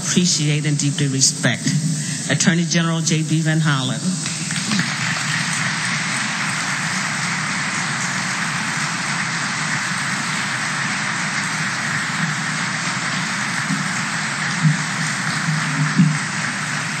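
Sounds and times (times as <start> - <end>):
audience applauding: 4.1 - 17.0.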